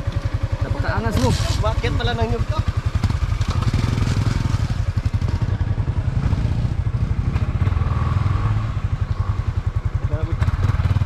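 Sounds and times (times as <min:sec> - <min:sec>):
small engine running: 0:00.0 - 0:05.7.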